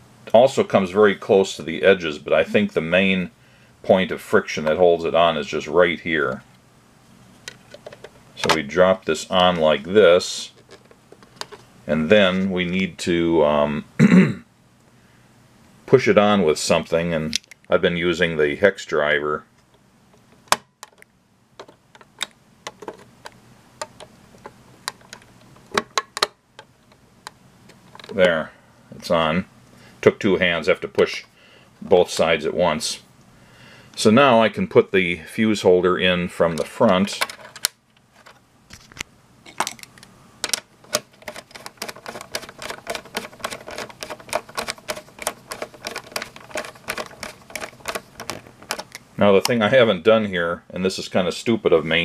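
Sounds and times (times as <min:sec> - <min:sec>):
plastic knob clicking: 0:40.5 - 0:49.0.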